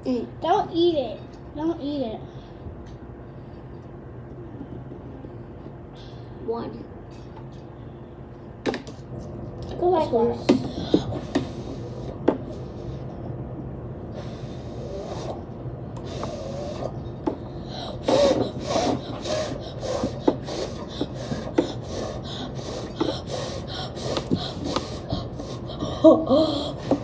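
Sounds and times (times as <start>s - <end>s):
child blowing short puffs: 17.7s - 25.9s.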